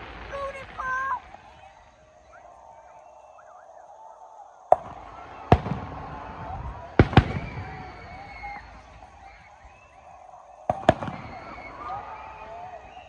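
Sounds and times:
fireworks booming with echo: 0:00.0 - 0:03.5, 0:04.7 - 0:13.0.

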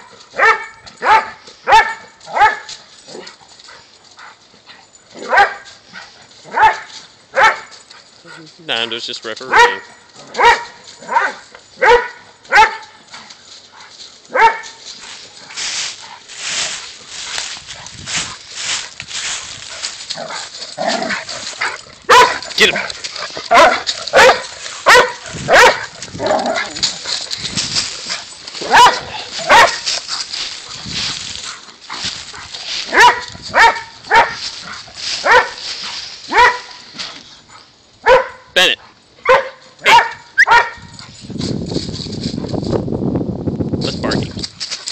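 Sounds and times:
dogs running through dry leaves: 0:00.0 - 0:37.5
dog barking sharply: 0:00.4 - 0:02.7, 0:05.2 - 0:05.7, 0:06.5 - 0:07.7, 0:09.5 - 0:12.8, 0:14.3 - 0:14.8, 0:21.6 - 0:22.9, 0:23.5 - 0:25.9, 0:28.6 - 0:29.8, 0:32.9 - 0:34.4, 0:35.2 - 0:35.6, 0:36.3 - 0:36.8, 0:38.0 - 0:38.5, 0:39.2 - 0:40.8.

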